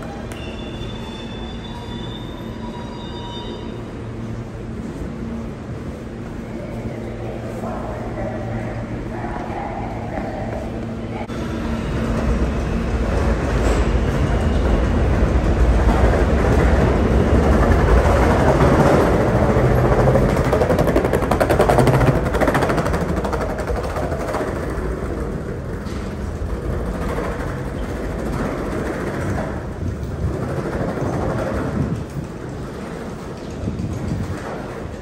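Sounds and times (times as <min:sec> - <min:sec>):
subway train rumbling: 0:00.0 - 0:35.0
wheels clattering on rails: 0:11.8 - 0:35.0.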